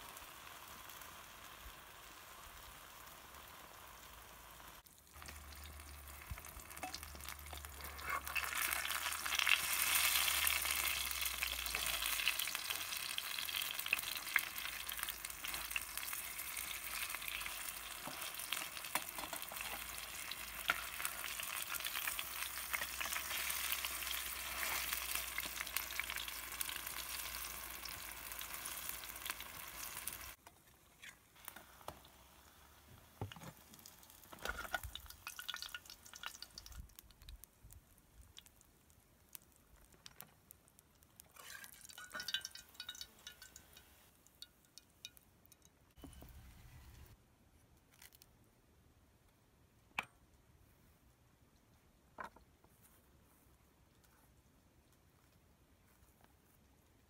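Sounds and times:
fritters sizzling in hot oil: 0.0s - 47.2s
metal spatula scraping a pan: 6.8s - 10.8s.

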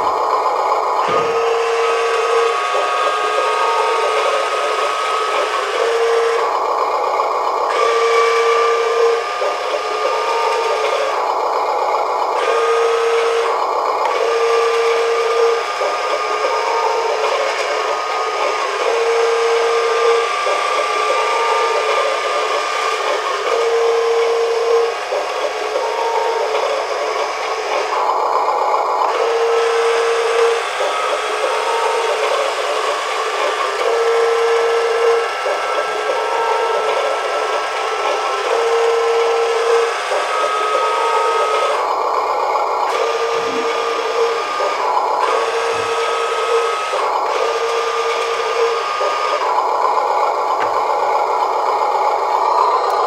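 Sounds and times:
electric motor whirring: 0.0s - 53.0s
low electronic beep: 52.5s - 53.0s.

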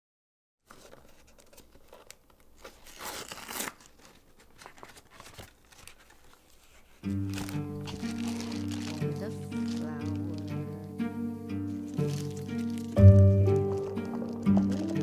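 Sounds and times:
plastic bag rustling: 0.7s - 15.0s
cardboard box tearing: 2.6s - 6.0s, 7.2s - 10.5s
music with low string notes: 7.0s - 15.0s.

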